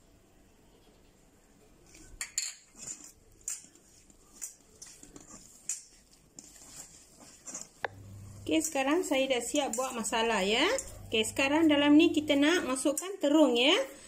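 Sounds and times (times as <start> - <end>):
fingers scraping steel bowl: 2.8 - 11.2.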